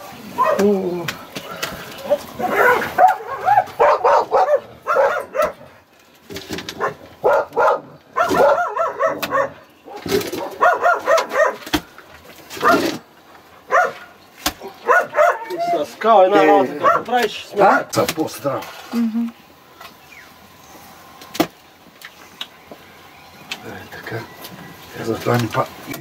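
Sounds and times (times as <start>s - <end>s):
dog barking: 0.4s - 0.7s, 2.0s - 5.7s, 6.8s - 11.7s, 12.6s - 12.9s, 13.7s - 15.8s, 16.7s - 17.2s.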